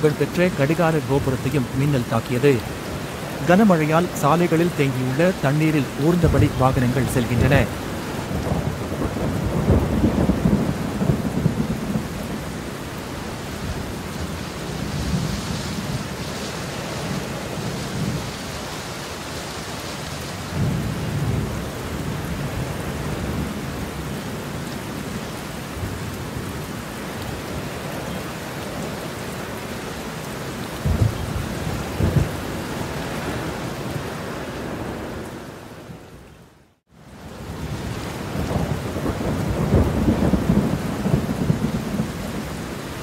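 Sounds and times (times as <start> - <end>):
thunder rumbling: 0.0 - 18.5, 30.8 - 33.6, 37.4 - 43.0
heavy rain downpour: 0.0 - 43.0.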